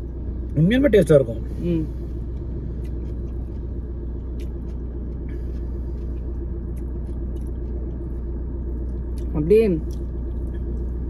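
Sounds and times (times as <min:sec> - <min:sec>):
car engine idling low rumble: 0:00.0 - 0:11.0.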